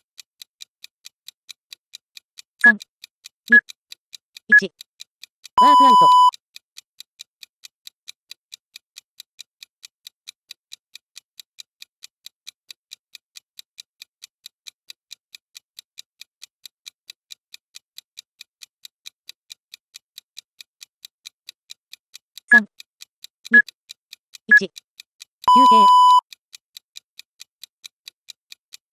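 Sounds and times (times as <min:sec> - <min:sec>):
timer ticking: 0:00.0 - 0:28.9
recorded voice counting down: 0:02.6 - 0:02.8, 0:03.5 - 0:03.7, 0:04.5 - 0:04.8, 0:05.6 - 0:06.3, 0:22.5 - 0:22.7, 0:23.5 - 0:23.7, 0:24.5 - 0:24.8, 0:25.5 - 0:26.2
timer beep: 0:03.5 - 0:03.7, 0:04.5 - 0:04.7, 0:05.6 - 0:06.4, 0:24.5 - 0:24.7, 0:25.5 - 0:26.3.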